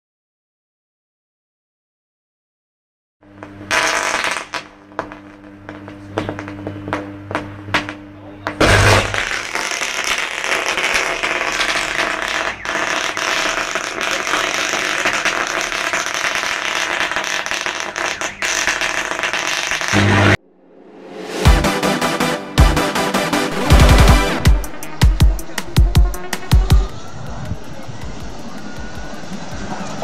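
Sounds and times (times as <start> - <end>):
electrical arc crackling: 3.4 - 20.4, 23.5 - 28.2.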